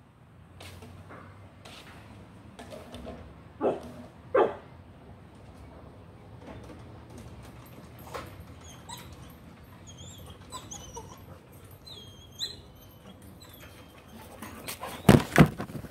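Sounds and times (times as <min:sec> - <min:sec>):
puppies whimpering: 0:08.5 - 0:15.2.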